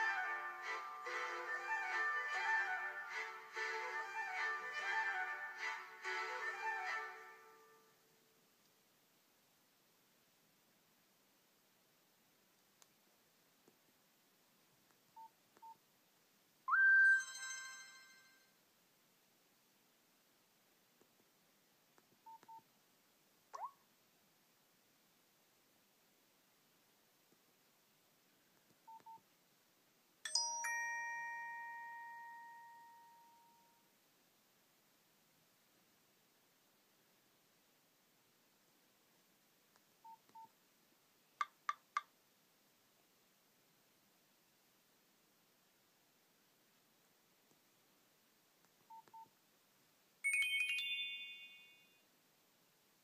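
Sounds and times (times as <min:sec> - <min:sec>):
phone message alert tone: 0:16.7 - 0:18.1
bell-like phone chime: 0:16.7 - 0:18.5, 0:30.3 - 0:33.7, 0:50.2 - 0:52.0
phone keypad beeps: 0:22.3 - 0:22.6, 0:28.9 - 0:29.2, 0:40.0 - 0:40.5, 0:48.9 - 0:49.3.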